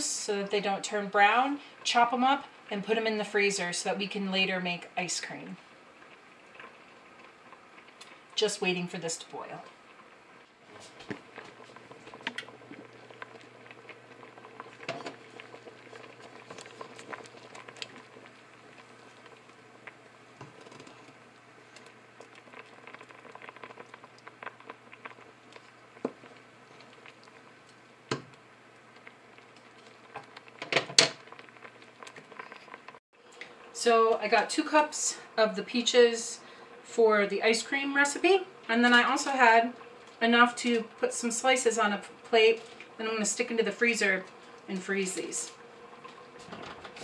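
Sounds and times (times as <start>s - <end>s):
faint steady hum: 0.0s - 47.0s
sauce bubbling and popping: 5.8s - 8.4s, 9.6s - 33.7s, 38.5s - 41.0s, 45.5s - 47.0s.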